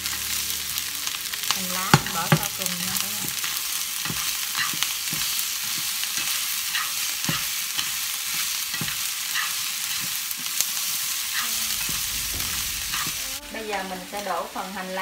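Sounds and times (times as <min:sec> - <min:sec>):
fried rice sizzling in oil: 0:00.0 - 0:15.0
chopsticks scraping and tapping pan: 0:03.3 - 0:10.5.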